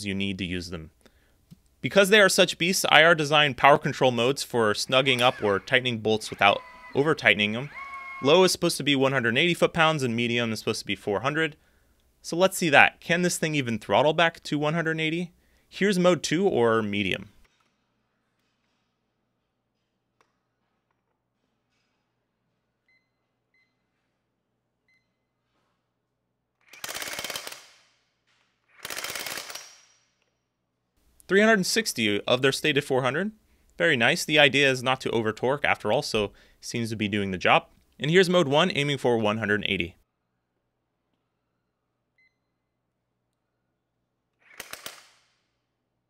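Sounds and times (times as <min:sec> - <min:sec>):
impact wrench hammer blows: 0:03.7 - 0:09.6, 0:26.6 - 0:27.8, 0:44.4 - 0:45.3.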